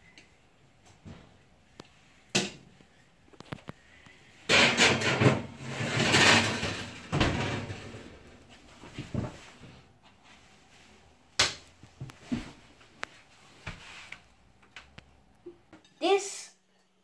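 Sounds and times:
kitchenware clattering and scraping: 4.4s - 8.3s.

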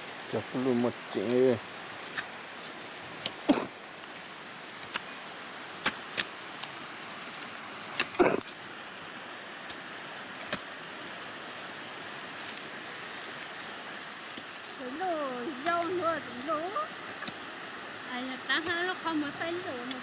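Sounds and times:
stream rushing: 0.0s - 20.0s
hoe striking soil: 5.8s - 6.4s.

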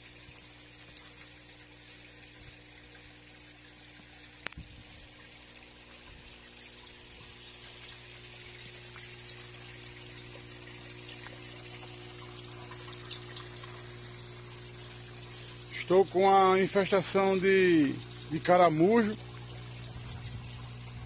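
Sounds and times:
water trickling and pouring: 0.0s - 21.0s
steady low hum: 4.5s - 21.0s.

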